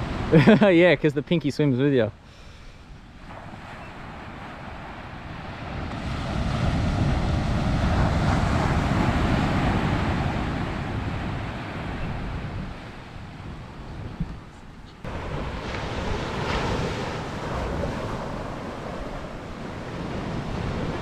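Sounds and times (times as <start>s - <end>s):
wave breaking on beach: 3.2s - 14.2s, 15.0s - 21.0s.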